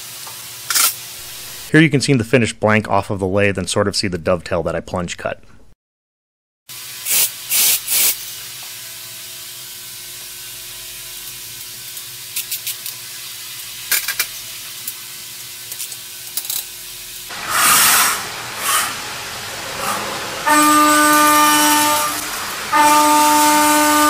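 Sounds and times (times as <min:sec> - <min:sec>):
coolant spraying with a hiss: 0:00.0 - 0:01.7, 0:06.7 - 0:24.0
machine hum: 0:01.2 - 0:03.0, 0:16.8 - 0:24.0.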